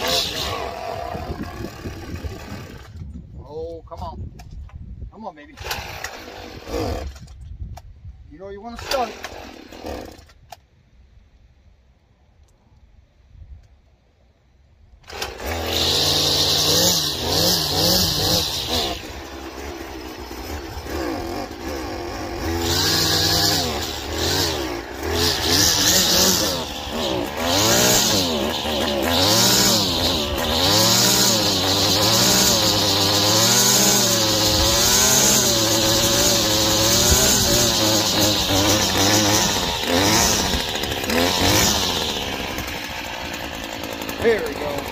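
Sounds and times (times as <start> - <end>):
string trimmer engine running unevenly: 0.0 - 3.1, 15.1 - 44.9.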